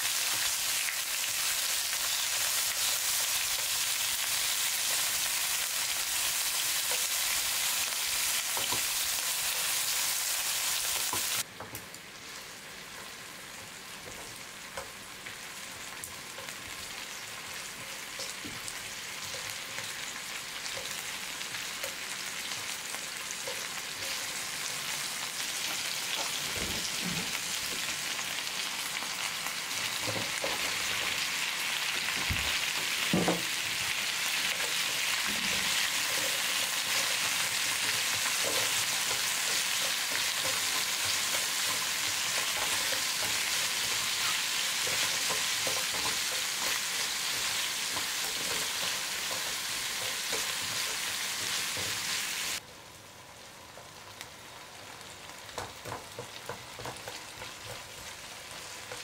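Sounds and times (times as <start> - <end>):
food sizzling in oil: 0.0 - 59.0.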